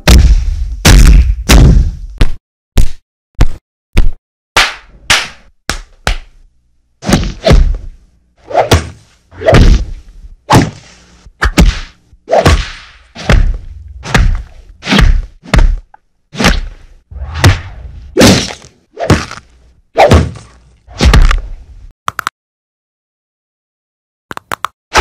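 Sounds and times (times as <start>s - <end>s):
punch impacts with swish: 0.0s - 2.4s, 7.0s - 7.9s, 8.5s - 19.4s, 20.0s - 21.4s.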